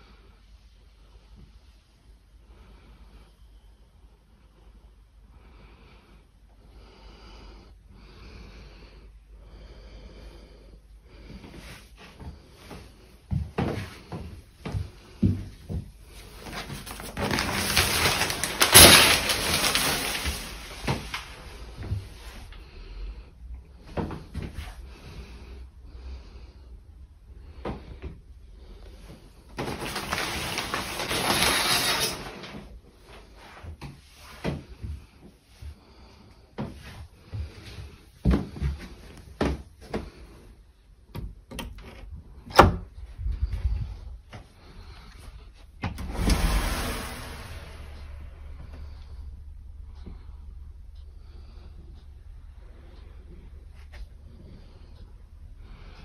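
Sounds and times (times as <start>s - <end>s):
shower curtain sliding on rail: 16.2s - 22.4s, 29.5s - 33.6s, 45.9s - 49.0s.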